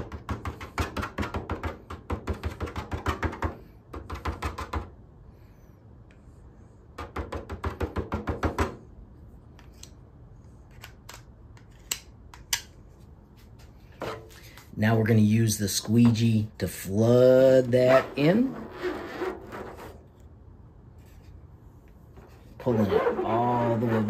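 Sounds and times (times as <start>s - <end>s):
spatula scraping ink: 17.7s - 20.2s, 22.6s - 24.0s.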